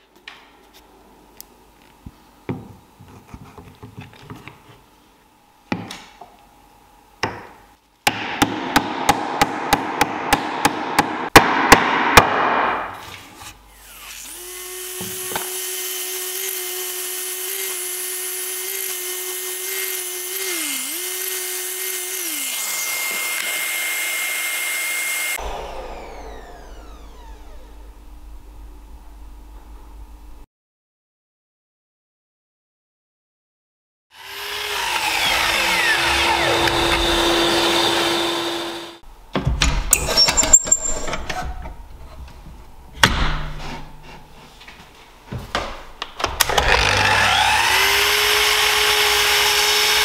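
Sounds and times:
power tool motor running: 13.7s - 27.9s, 34.2s - 39.0s, 46.4s - 50.0s.

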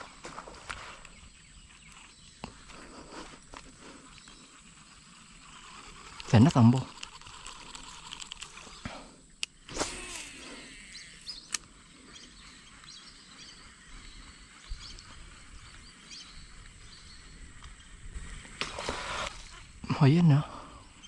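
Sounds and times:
steady high-pitched hiss: 0.0s - 21.0s
sharp clicks: 5.6s - 10.2s, 11.2s - 11.7s
faint bird calls: 8.5s - 21.0s.

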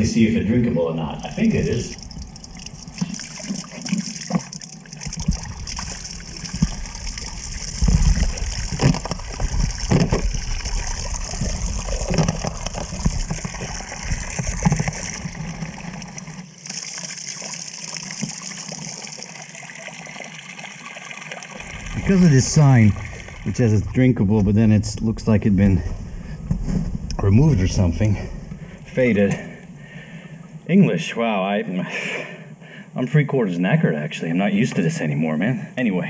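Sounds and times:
water running from tap: 1.2s - 23.9s.

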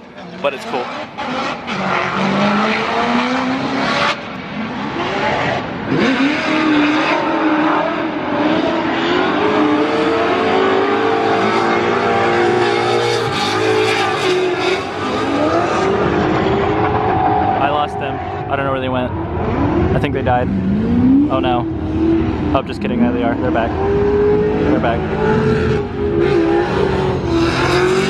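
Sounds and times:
car engines revving high: 0.0s - 28.0s.

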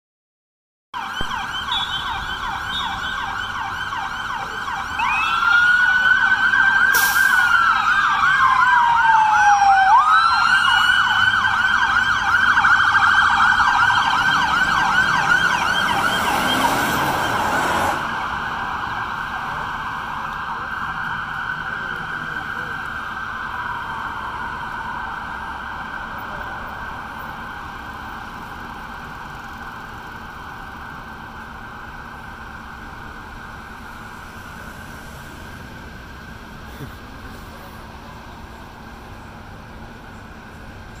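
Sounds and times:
wailing siren: 1.0s - 41.0s
yelping sirens: 1.0s - 41.0s.

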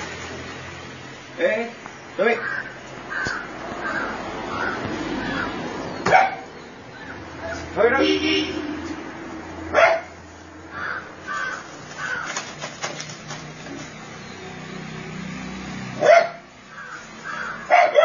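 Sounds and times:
dog barking: 6.0s - 6.5s, 9.7s - 10.2s, 16.0s - 16.4s, 17.7s - 18.0s.

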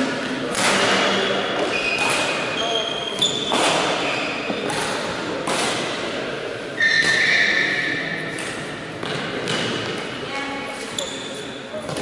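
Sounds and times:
racket striking shuttlecock: 0.5s - 2.6s, 3.2s - 6.1s, 8.3s - 10.1s
shoe squeaking on court floor: 0.9s - 5.1s, 6.7s - 9.8s, 10.8s - 12.0s.

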